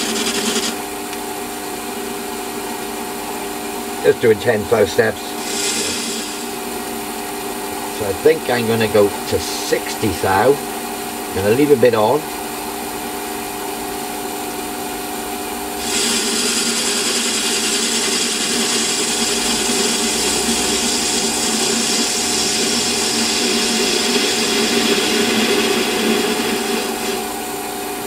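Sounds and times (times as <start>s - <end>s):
lathe tool cutting hiss: 0.0s - 0.8s, 4.7s - 6.8s, 15.8s - 27.6s
metal lathe humming: 0.0s - 1.0s, 1.7s - 12.1s, 15.8s - 28.0s.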